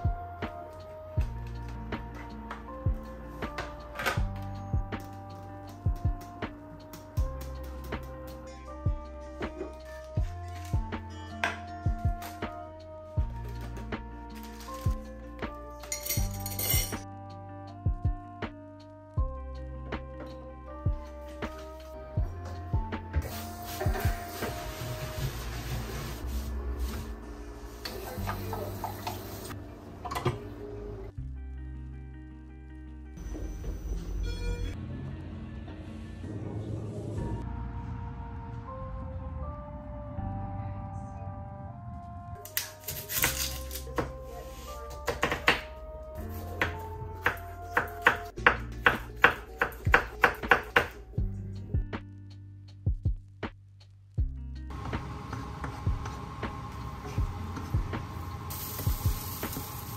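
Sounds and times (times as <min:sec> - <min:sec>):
background music: 0:00.0 - 0:59.9
glass clinking on steel: 0:15.9 - 0:17.0.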